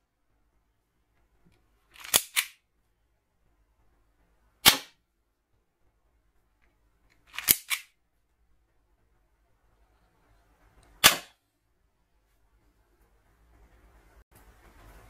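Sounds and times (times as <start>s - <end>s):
toy gun clicks and cracks: 2.0s - 2.6s, 7.2s - 7.9s.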